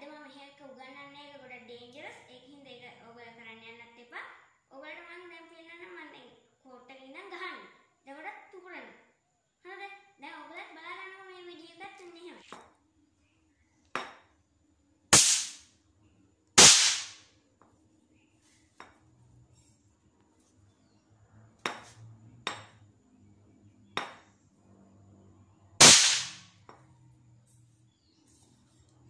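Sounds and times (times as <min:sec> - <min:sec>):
toy caps banging: 0:15.2 - 0:15.6, 0:16.6 - 0:17.2, 0:25.8 - 0:26.5.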